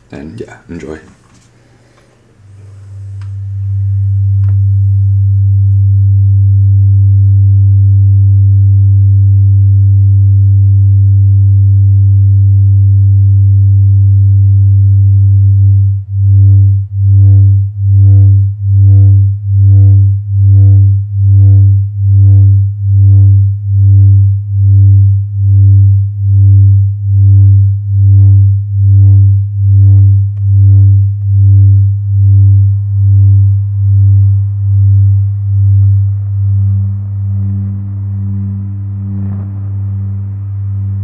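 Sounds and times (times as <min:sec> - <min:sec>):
low electronic drone: 0:02.3 - 0:41.0
fainter higher tones: 0:32.0 - 0:41.0.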